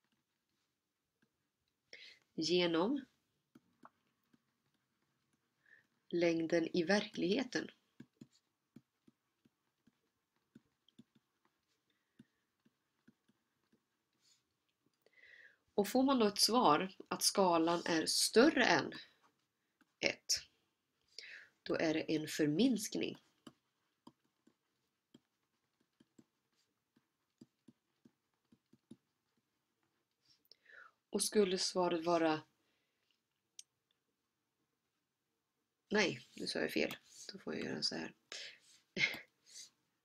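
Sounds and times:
stylus tapping on tablet: 0:03.5 - 0:05.5, 0:07.0 - 0:14.0, 0:23.1 - 0:29.5.

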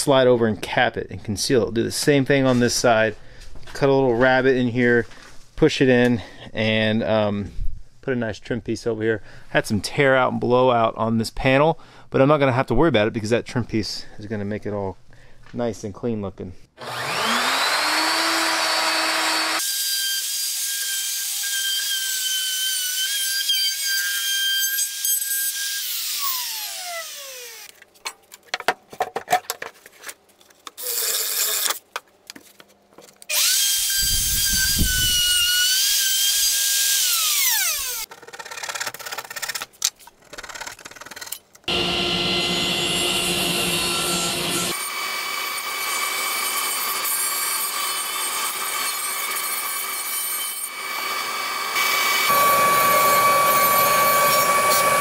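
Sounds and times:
router whine: 0:16.8 - 0:19.8, 0:33.3 - 0:38.1, 0:41.7 - 0:48.8, 0:50.6 - 0:55.0
drilling: 0:16.8 - 0:23.6, 0:33.3 - 0:38.1, 0:41.7 - 0:55.0
table saw cutting plywood: 0:16.8 - 0:27.7, 0:33.3 - 0:38.1, 0:41.7 - 0:55.0.

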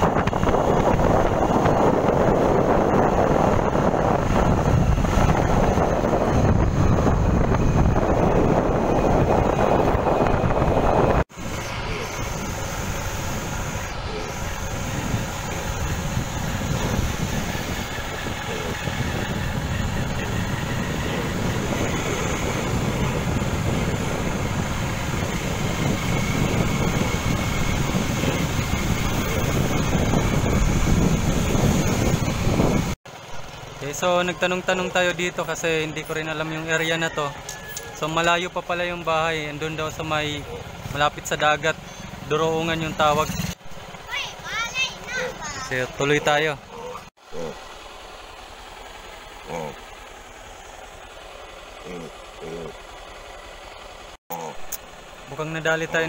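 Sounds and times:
wind rushing over microphone: 0:00.0 - 0:33.0
motorcycle riding: 0:00.0 - 0:56.0
vehicle engine and road noise: 0:00.0 - 0:56.0.

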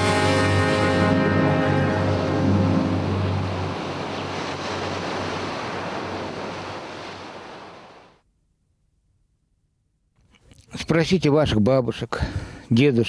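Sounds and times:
sea surf washing: 0:00.0 - 0:08.2.

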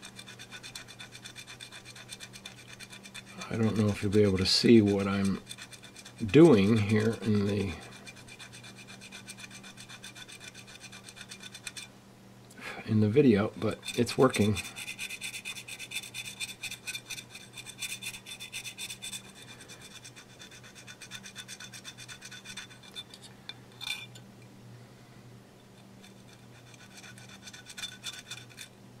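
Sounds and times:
sanding swab scratching: 0:00.0 - 0:11.9, 0:13.7 - 0:23.0, 0:26.0 - 0:28.7.

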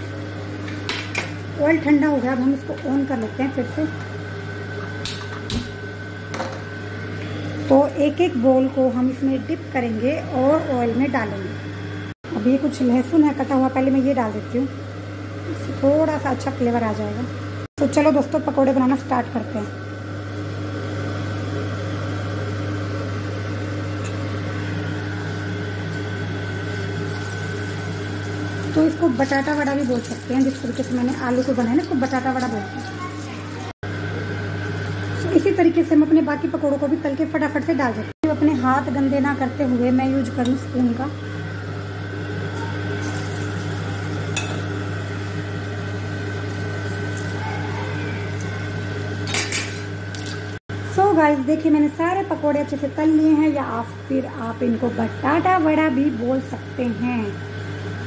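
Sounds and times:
electric fan motor humming: 0:00.0 - 0:58.0
batter sizzling in hot oil: 0:25.9 - 0:33.7, 0:43.0 - 0:47.4.

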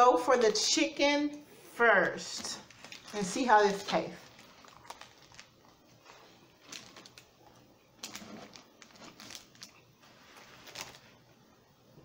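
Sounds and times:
crackles of crust: 0:00.0 - 0:01.4, 0:02.0 - 0:11.4
paper wrapper crinkling: 0:02.1 - 0:11.4
close-up chewing: 0:04.2 - 0:11.0.

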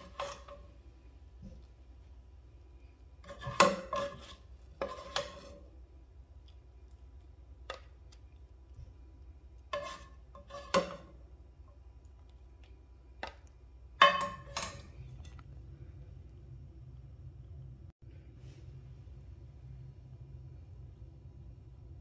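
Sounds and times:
spatula scraping frying pan: 0:00.0 - 0:00.8, 0:03.2 - 0:05.8, 0:09.6 - 0:11.2, 0:14.0 - 0:15.4.

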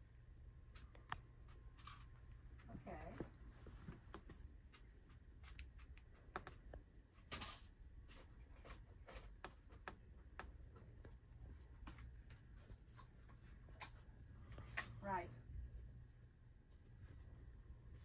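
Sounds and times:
low room hum: 0:00.0 - 0:18.0
faint clicks and taps: 0:00.4 - 0:07.0, 0:08.0 - 0:15.0.

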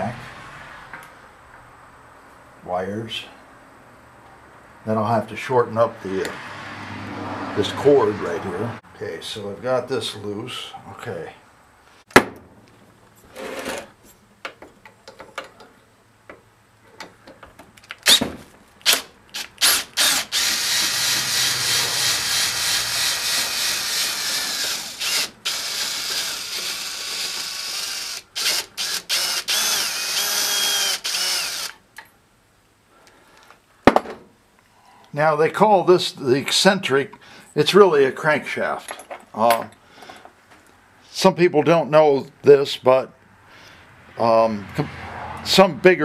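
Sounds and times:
cordless drill spinning: 0:18.8 - 0:31.8.

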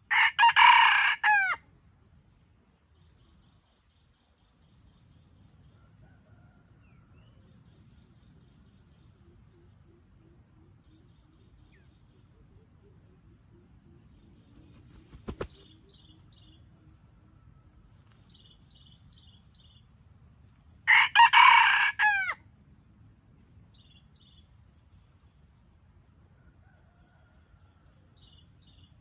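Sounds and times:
rooster crowing: 0:00.1 - 0:01.6, 0:20.9 - 0:22.4
small birds chirping faintly: 0:01.6 - 0:29.0.

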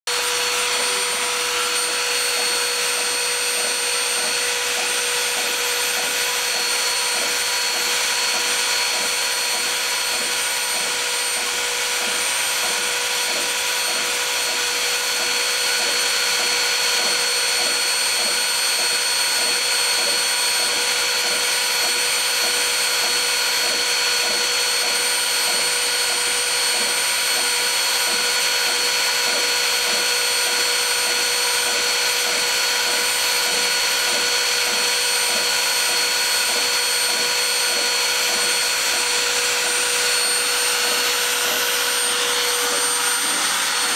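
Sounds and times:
drill plunging beat: 0:00.1 - 0:43.9
spindle motor high whine: 0:00.1 - 0:43.9.

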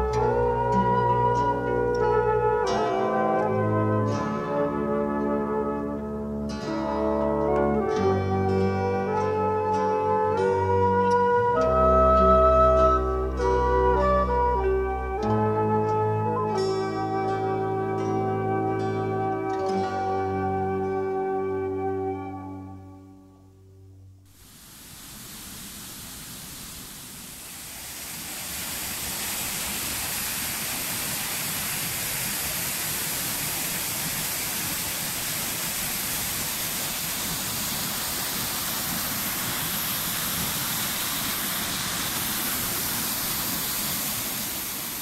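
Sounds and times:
waterfall rushing: 0:24.3 - 0:45.0.

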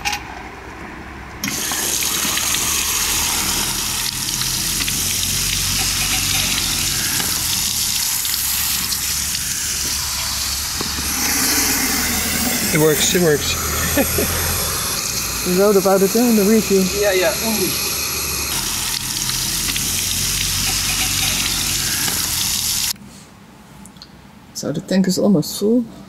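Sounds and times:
water rushing through hose: 0:01.4 - 0:23.0.

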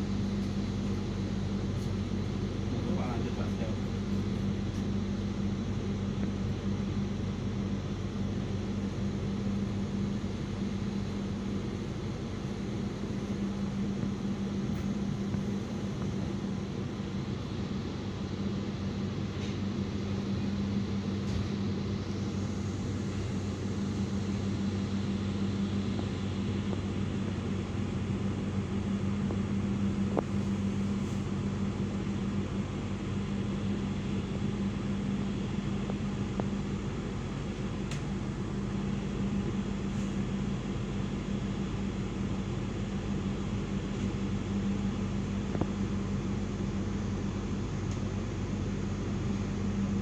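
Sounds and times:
train coach rumble and hum: 0:00.0 - 0:50.0
faint click: 0:37.9 - 0:38.1.

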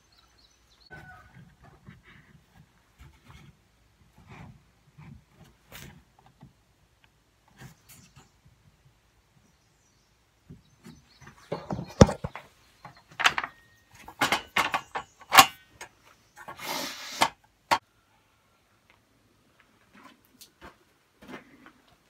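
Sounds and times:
board sliding scrape: 0:16.5 - 0:17.4.

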